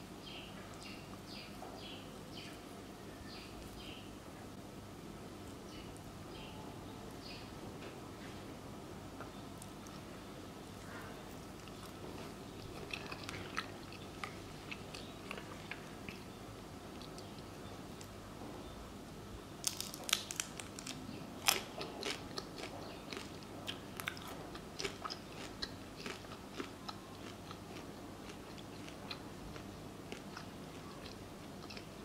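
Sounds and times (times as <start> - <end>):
crunchy chewing: 9.2 - 18.2, 19.6 - 32.0.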